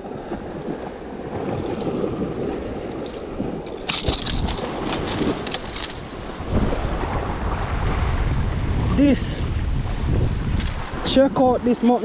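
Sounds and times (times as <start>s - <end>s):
waves washing against rocks: 0.0s - 12.0s
wind on microphone: 0.0s - 12.0s
clicks and rustles: 2.9s - 6.4s, 10.6s - 11.0s.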